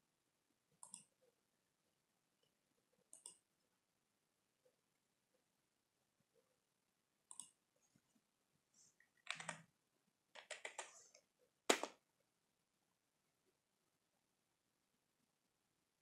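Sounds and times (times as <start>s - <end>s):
computer keyboard typing: 9.2s - 9.7s, 10.4s - 10.9s.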